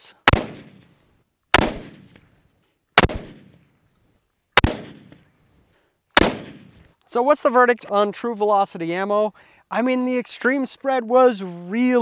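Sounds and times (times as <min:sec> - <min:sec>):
rifle shots with echo: 0:00.2 - 0:00.9, 0:01.5 - 0:02.2, 0:03.0 - 0:03.6, 0:04.6 - 0:05.2, 0:06.2 - 0:06.8.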